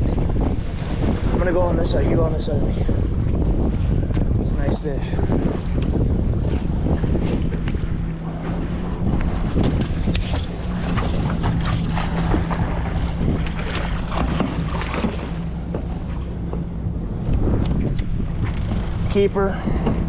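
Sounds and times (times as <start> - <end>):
boat motor running: 0.0 - 20.0
wind buffeting microphone: 0.0 - 20.0
knocks and splashes: 6.4 - 16.6, 19.7 - 20.0.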